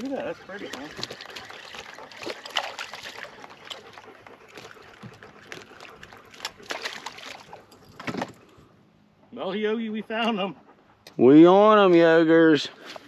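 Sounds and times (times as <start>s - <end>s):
water splashes: 0.0s - 8.4s
low lapping water: 0.0s - 8.9s.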